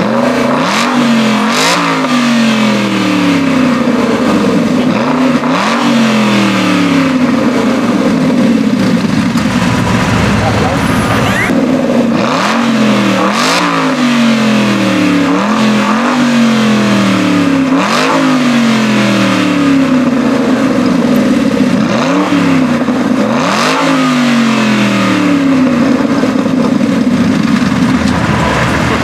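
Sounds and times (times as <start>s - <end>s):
car engine revving: 0.0s - 29.0s.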